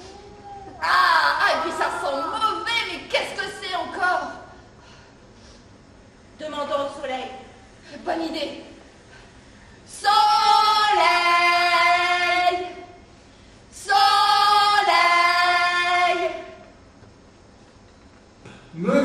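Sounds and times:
women singing long calls: 9.9s - 13.0s, 13.8s - 16.6s.

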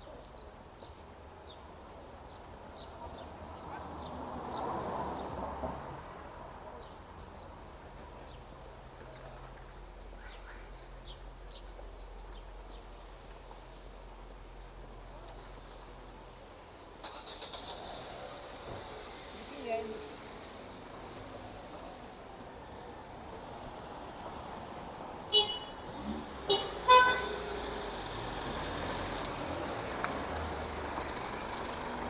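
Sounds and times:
low traffic hum: 0.0s - 32.0s
vehicle passing: 22.9s - 32.0s.

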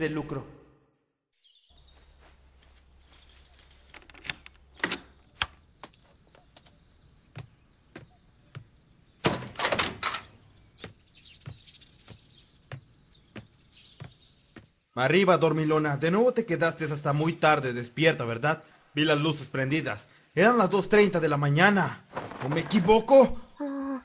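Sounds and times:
scraping rustling noise: 1.8s - 4.3s, 22.1s - 23.1s
slipper footsteps on wooden floor: 5.8s - 8.9s, 10.7s - 14.9s.

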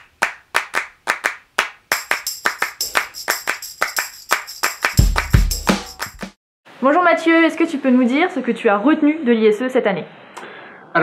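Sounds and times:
rhythmic hand claps: 0.0s - 6.4s.

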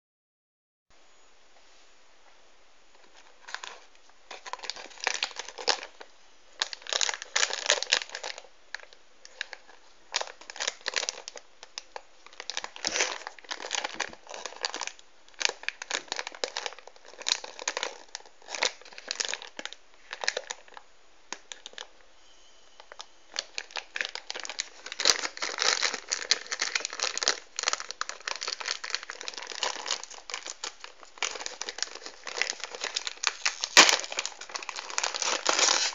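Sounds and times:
plastic packets crinkling: 3.0s - 22.0s, 22.8s - 35.9s.

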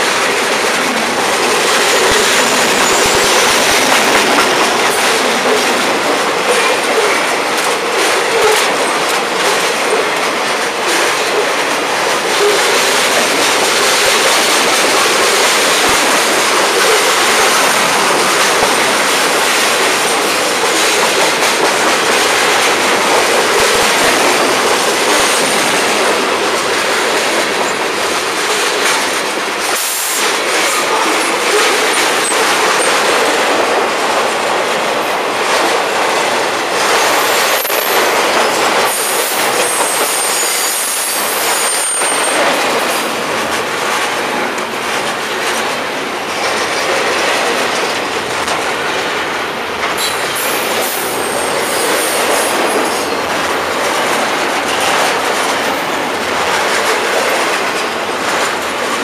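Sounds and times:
clickety-clack over rail joints: 0.0s - 59.0s
freight train wheels rushing on rails: 0.0s - 59.0s
high wheel squeals: 39.7s - 42.4s.

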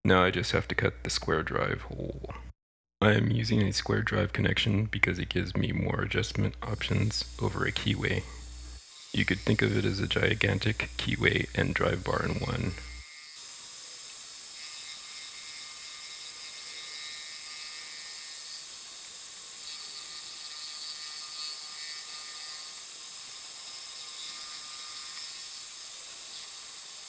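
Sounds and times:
mini-mill cutting brass: 6.6s - 27.0s.

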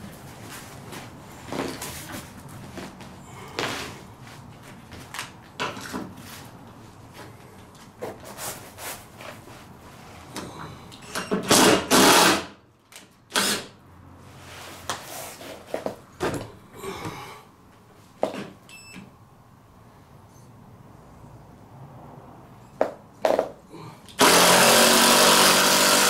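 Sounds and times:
cordless drill driving screws: 11.4s - 12.5s, 13.3s - 13.7s, 24.2s - 26.0s.

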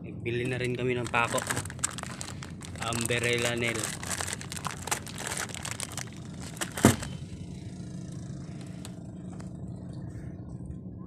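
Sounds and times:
low engine drone: 0.0s - 11.0s
plastic bag crinkling: 0.5s - 7.2s.

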